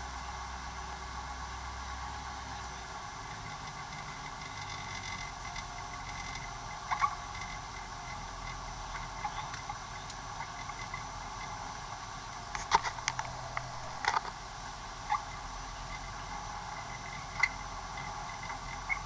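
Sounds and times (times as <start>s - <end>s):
steady hiss: 0.0s - 19.0s
sharp clicks and knocks: 12.5s - 14.4s.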